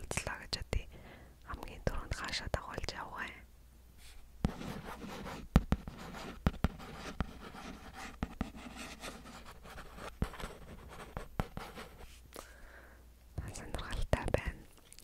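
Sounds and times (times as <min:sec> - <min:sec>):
pen scratching on paper: 0:04.4 - 0:12.2.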